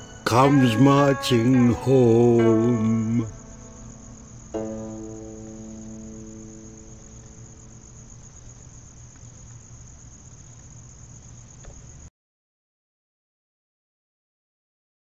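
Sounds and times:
song chord: 0.0s - 7.5s
crickets chirping: 0.0s - 12.1s.

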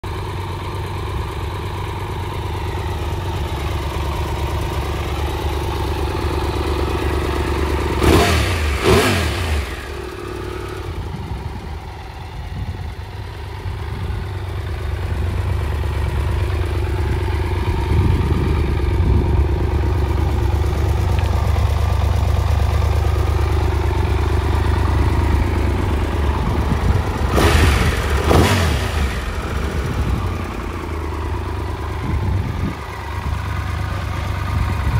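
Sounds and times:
motorcycle engine idling and revving: 0.0s - 34.9s.

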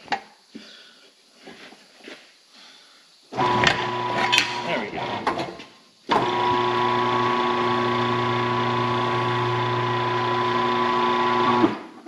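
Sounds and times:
electric turntable motor humming: 3.4s - 5.4s, 6.1s - 11.8s.

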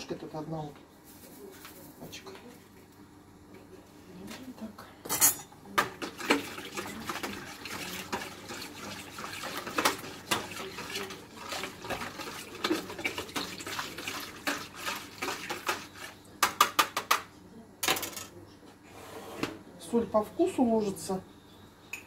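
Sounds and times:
hand stirring water in bowl: 5.8s - 17.0s.

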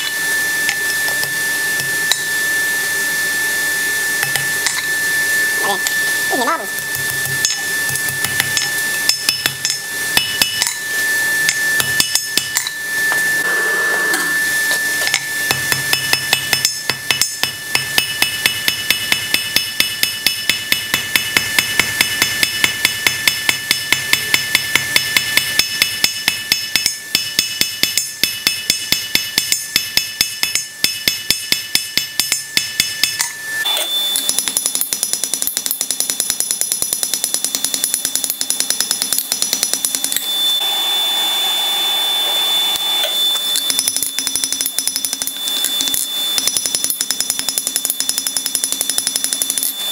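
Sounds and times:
hammer striking steel on anvil: 4.2s - 4.9s, 6.8s - 13.2s, 15.0s - 33.4s, 34.1s - 40.3s, 43.5s - 49.9s.

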